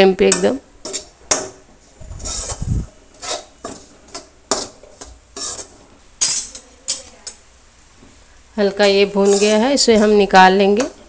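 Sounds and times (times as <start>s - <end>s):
metal ladle scraping pan: 2.2s - 6.7s, 8.7s - 10.2s.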